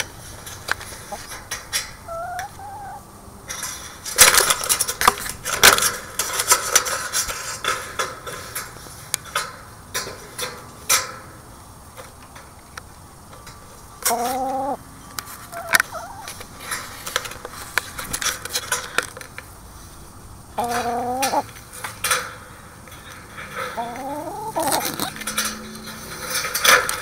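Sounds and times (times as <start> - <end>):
chicken clucking: 0.0 - 5.0, 14.0 - 18.9, 20.5 - 21.6, 23.0 - 27.0
chicken rising call: 2.0 - 3.1, 14.0 - 14.8, 15.5 - 16.4, 20.6 - 21.4, 23.7 - 25.2.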